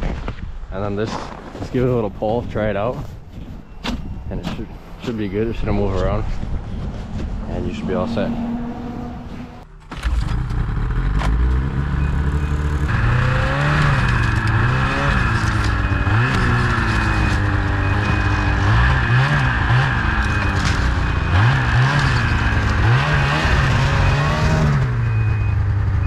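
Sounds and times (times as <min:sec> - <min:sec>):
snowmobile engine revving: 0:04.6 - 0:26.0
reverse warning beeper: 0:11.9 - 0:26.0.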